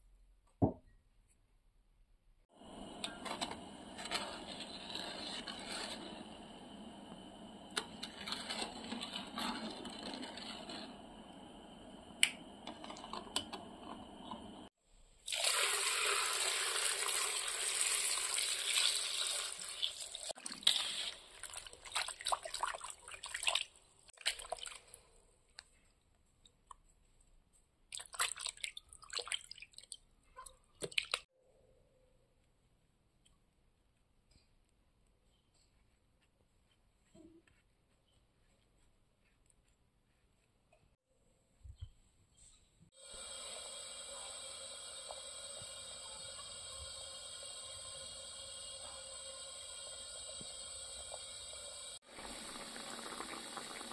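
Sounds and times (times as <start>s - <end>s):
water poured into sugar: 2.6s - 13.2s, 15.2s - 25.1s, 43.0s - 53.9s.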